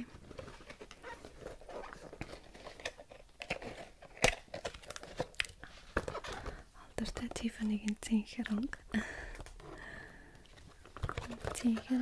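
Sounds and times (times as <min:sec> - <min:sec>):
box rustling and crinkling: 0:00.0 - 0:06.7, 0:10.4 - 0:12.0.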